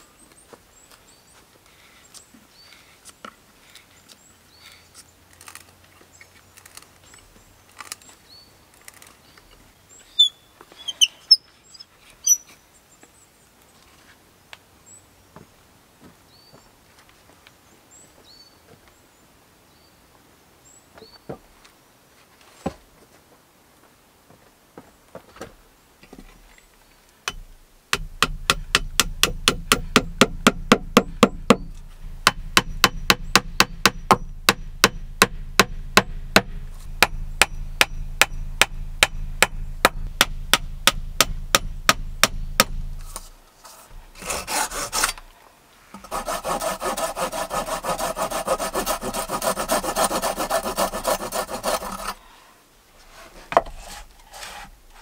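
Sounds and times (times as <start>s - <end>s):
hand saw cutting wood: 28.0s - 45.3s, 46.0s - 52.2s, 53.2s - 55.0s.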